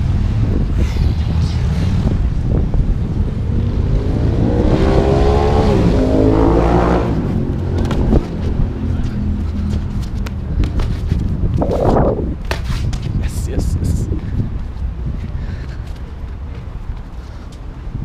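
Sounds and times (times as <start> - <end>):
steady low rumble: 0.0 - 18.0
vehicle engine revving past: 3.3 - 8.2.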